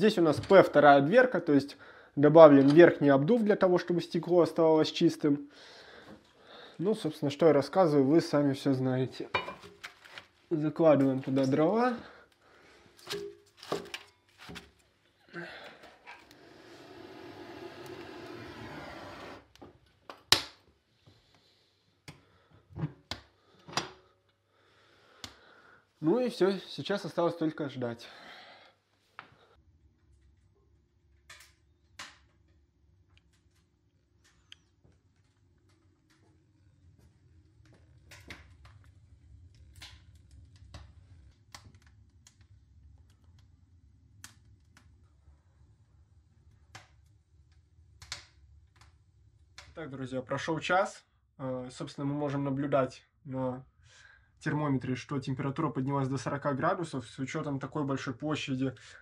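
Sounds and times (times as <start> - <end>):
firewood crackling: 1.8 - 27.5, 28.1 - 50.5
firewood scraping: 15.5 - 19.6.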